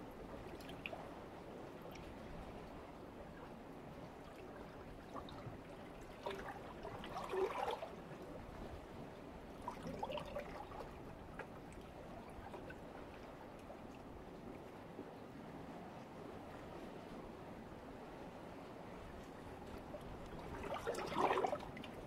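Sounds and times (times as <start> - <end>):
water splashing and trickling: 4.2 - 8.0, 9.5 - 13.2, 20.2 - 22.0
water lapping against rocks: 5.0 - 8.1, 19.8 - 22.0.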